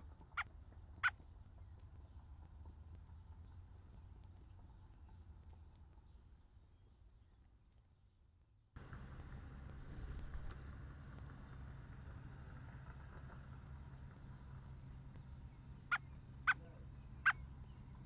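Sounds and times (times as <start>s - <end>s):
low steady rumble: 0.0s - 18.0s
high bird chirps: 0.1s - 2.0s.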